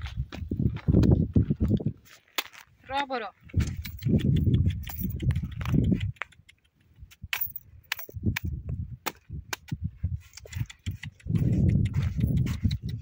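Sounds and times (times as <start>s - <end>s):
donkey hooves clopping on stones: 3.5s - 8.6s, 10.2s - 13.0s.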